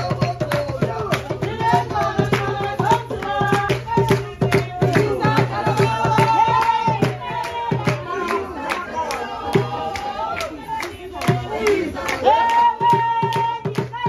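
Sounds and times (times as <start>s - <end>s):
fast drum beat: 0.0s - 8.0s
voices singing: 0.0s - 14.0s.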